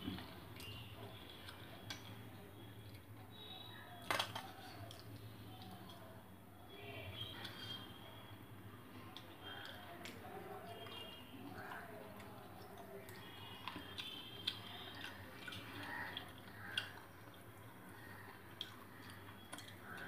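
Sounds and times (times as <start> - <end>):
chewing: 9.0 - 20.0.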